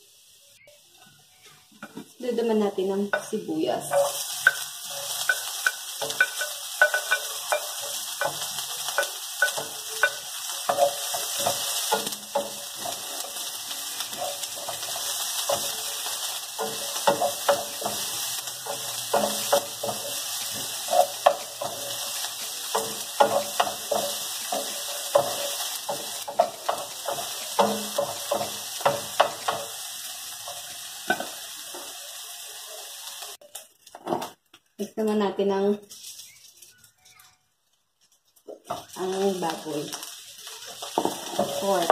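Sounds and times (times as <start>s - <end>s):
food sizzling in hot oil: 0.0s - 34.3s, 35.5s - 36.9s, 38.0s - 41.9s
wooden spoon scraping a pan: 3.2s - 29.7s, 40.7s - 41.9s.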